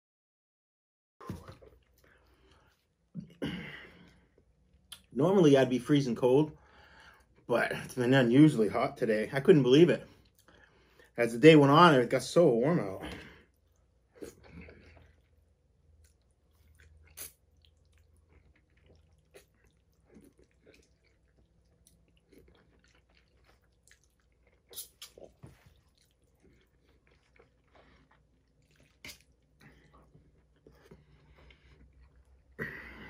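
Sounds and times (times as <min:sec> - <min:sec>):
chewing pasta: 0:13.1 - 0:33.0.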